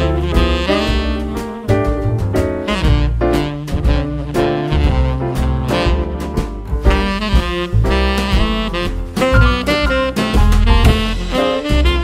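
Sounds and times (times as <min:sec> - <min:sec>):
upbeat swing jazz with saxophone: 0:00.0 - 0:12.0.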